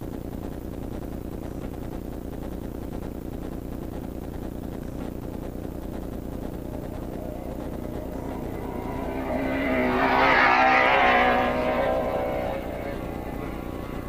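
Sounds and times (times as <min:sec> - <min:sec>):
race vehicle engine passing by: 0:05.6 - 0:14.0.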